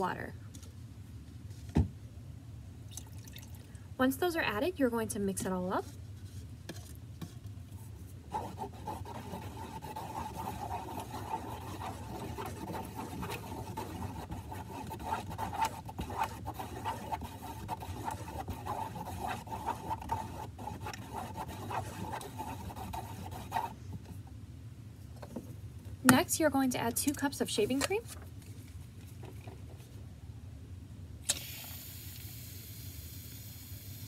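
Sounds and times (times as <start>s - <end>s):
stick stirring in plastic tub: 5.4s - 24.2s.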